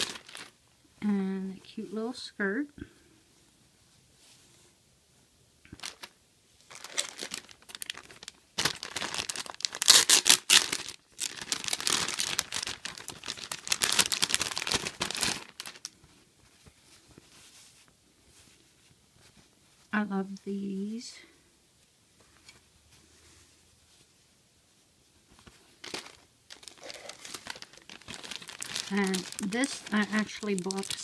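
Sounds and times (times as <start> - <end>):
plastic bag crinkling and tearing: 0.0 - 0.6, 5.7 - 16.0, 25.8 - 31.0.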